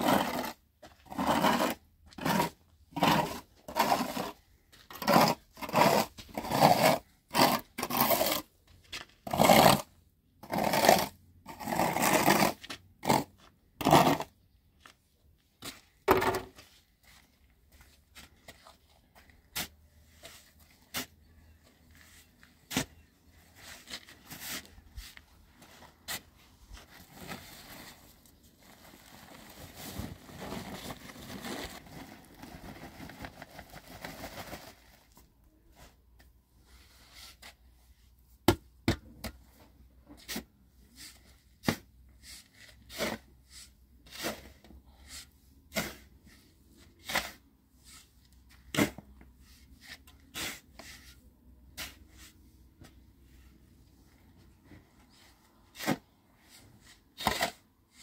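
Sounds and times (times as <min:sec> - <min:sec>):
tool scraping cement and sand: 0:00.0 - 0:08.5, 0:09.2 - 0:14.4, 0:40.1 - 0:54.0, 0:55.1 - 0:58.0.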